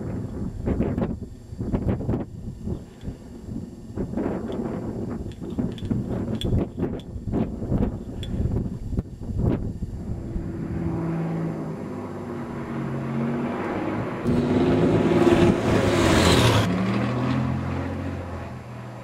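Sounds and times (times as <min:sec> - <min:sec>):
small plane flying low past: 0:07.3 - 0:19.0.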